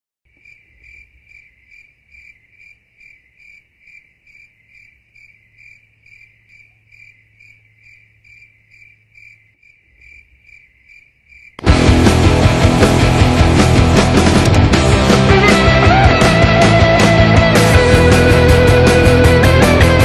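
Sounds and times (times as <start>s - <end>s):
cricket chirping: 0.3s - 11.6s.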